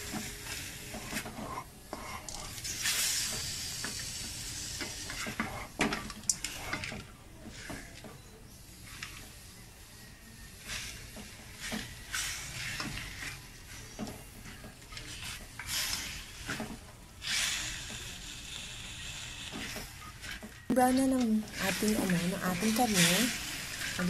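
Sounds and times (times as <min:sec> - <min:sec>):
meat and onions sizzling in wok: 0:00.0 - 0:06.8, 0:07.5 - 0:16.6, 0:17.2 - 0:24.0
metal spatula scraping wok: 0:00.2 - 0:03.7, 0:17.2 - 0:24.0.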